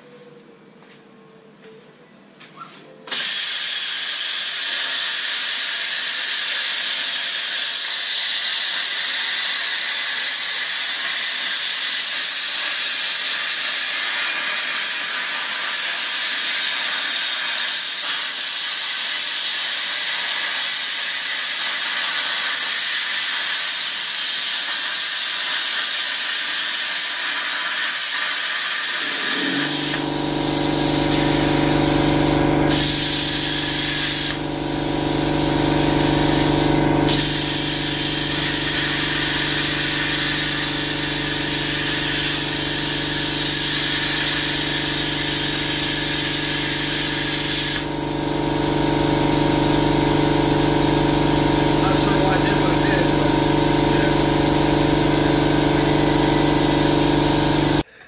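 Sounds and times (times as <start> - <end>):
plasma torch hissing: 3.1 - 57.9
low machine hum: 29.3 - 46.2, 47.8 - 58.0.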